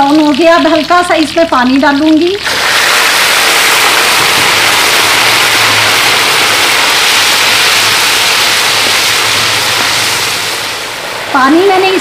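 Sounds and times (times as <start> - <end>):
onions sizzling in hot fat: 0.0 - 12.0.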